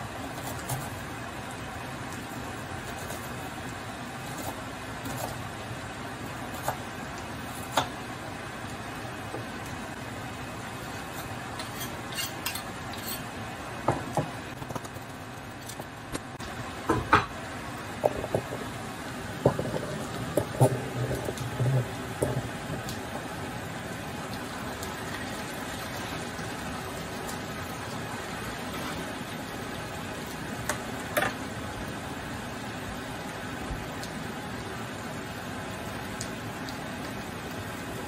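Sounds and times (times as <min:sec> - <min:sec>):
potatoes sizzling in oil: 0:00.0 - 0:38.0
utensils scraping a pan: 0:11.6 - 0:13.3.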